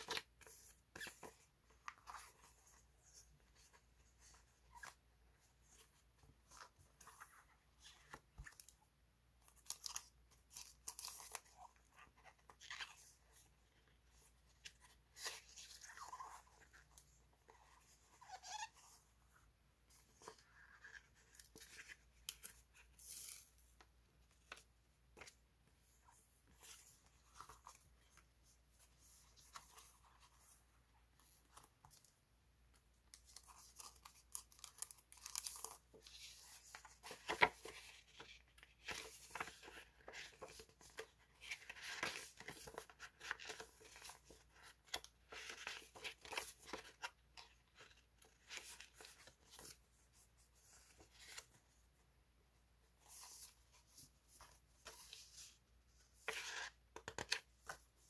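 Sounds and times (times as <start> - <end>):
paper rustling and crinkling: 33.1 - 51.8.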